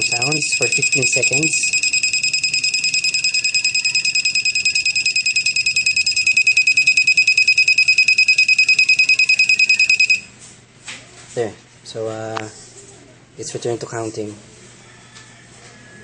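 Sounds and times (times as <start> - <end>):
fluttering electronic buzzer beep: 0.0 - 10.3.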